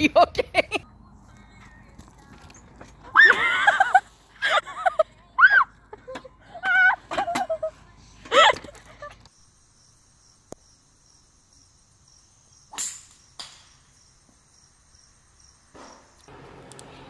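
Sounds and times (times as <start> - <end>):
crickets chirping: 6.4 - 16.4.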